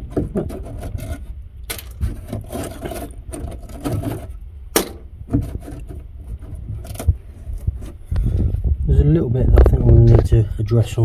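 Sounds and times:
rusted metal strip scraping: 0.0s - 8.0s.

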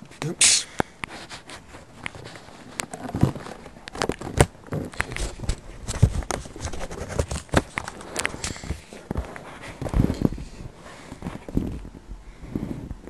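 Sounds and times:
plastic wrapper crinkling: 1.2s - 10.3s.

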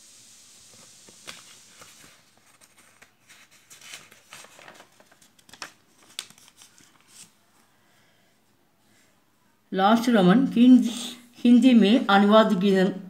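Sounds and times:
paper pages rustling: 0.6s - 7.6s.

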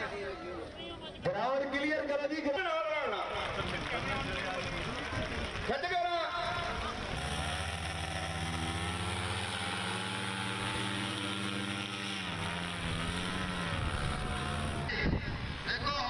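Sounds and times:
paraglider engine and propeller: 6.4s - 16.0s.

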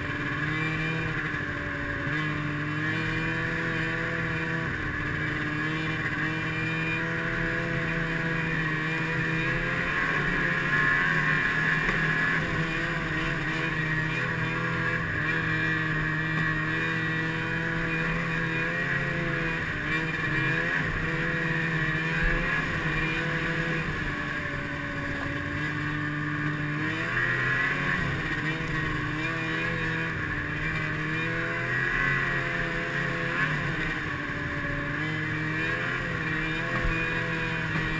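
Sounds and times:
snowmobile engine revving: 0.0s - 37.9s.

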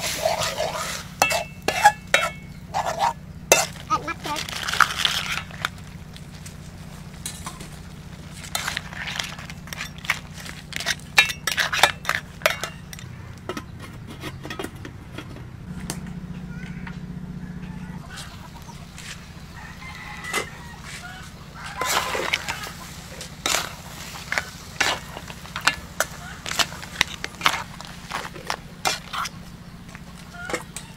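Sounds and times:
metal utensil clinking in wok: 1.2s - 2.5s, 10.8s - 13.6s.

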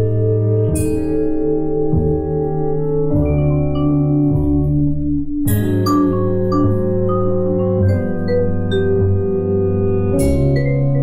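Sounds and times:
jazz ensemble chords: 0.0s - 11.0s
low bass notes: 0.0s - 11.0s
vibraphone notes: 5.5s - 9.6s.

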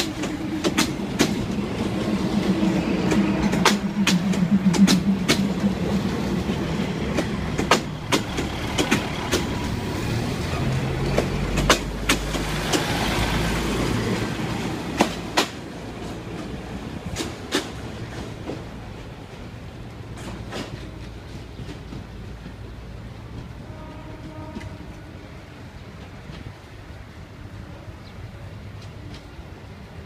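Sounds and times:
wheels clicking over rail joints: 0.0s - 23.6s
train coaches rumbling past: 0.0s - 30.0s.

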